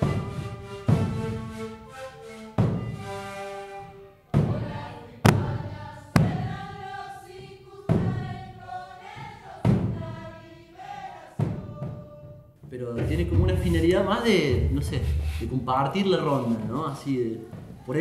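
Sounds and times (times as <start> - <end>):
group chanting: 4.3 - 12.4
deep hand drum strikes: 5.3 - 6.6, 13.0 - 16.2.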